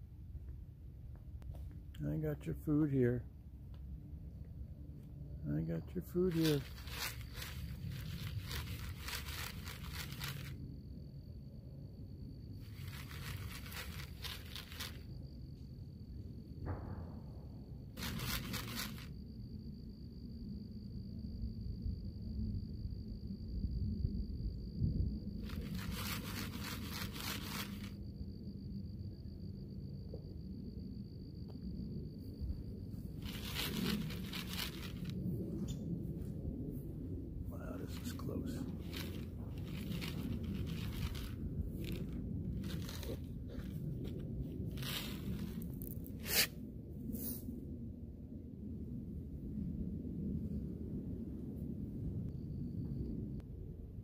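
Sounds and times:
low steady rumble: 0.0s - 54.0s
close rustling and crinkling: 6.3s - 10.6s, 12.7s - 15.0s, 18.0s - 19.1s, 25.4s - 27.9s, 33.2s - 35.1s, 38.0s - 45.9s.

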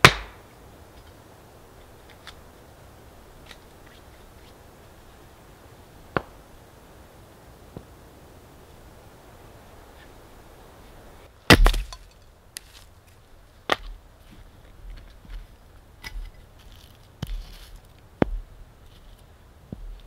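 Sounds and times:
hatchet chopping firewood: 0.0s - 0.4s, 11.5s - 12.2s
loud wood crack: 0.0s - 0.4s, 11.5s - 12.9s.

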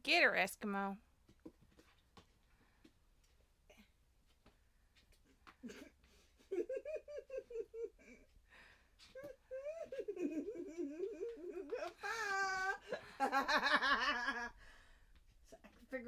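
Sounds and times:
faint taps and rustles: 1.2s - 3.5s, 4.2s - 6.2s
woman giggling: 5.6s - 8.4s, 9.0s - 14.6s.

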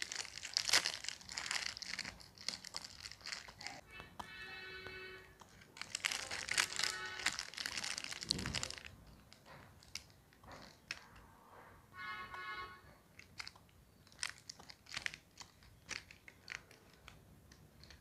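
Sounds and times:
foil wrapper crinkling: 0.0s - 3.8s, 5.3s - 11.0s, 13.2s - 17.2s.

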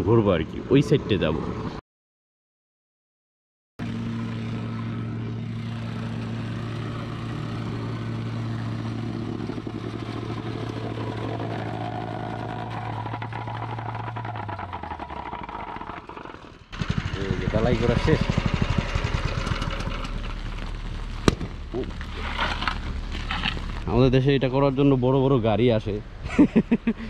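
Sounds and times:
plate compactor engine running: 3.8s - 23.8s.

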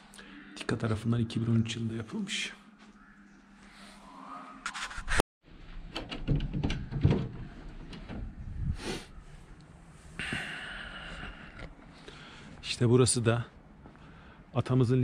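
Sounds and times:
door latch clicks and clunks: 5.9s - 8.3s.

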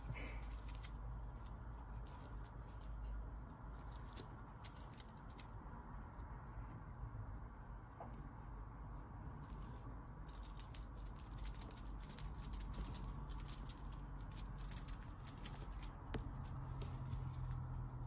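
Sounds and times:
kittens' claws scratching fabric: 0.0s - 5.6s, 9.4s - 17.9s
low steady hum: 0.0s - 18.0s.

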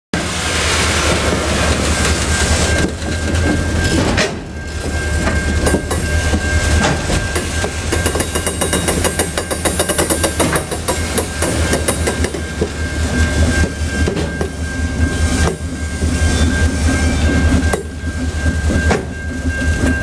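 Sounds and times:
low train rumble: 0.1s - 20.0s
train wheels clacking over joints: 0.8s - 20.0s.

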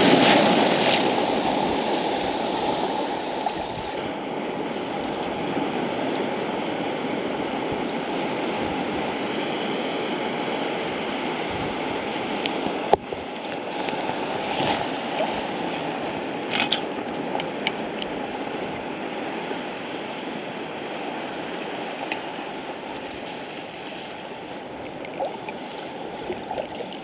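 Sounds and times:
small sea waves lapping: 0.0s - 5.8s, 12.0s - 27.0s
wind: 0.0s - 27.0s.

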